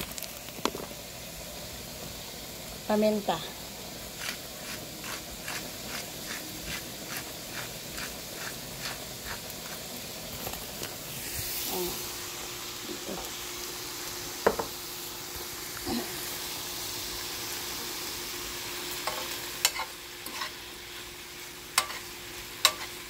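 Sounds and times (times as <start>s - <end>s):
food sizzling in a frying pan: 0.0s - 23.0s
pepper grinder crunching: 4.2s - 9.8s.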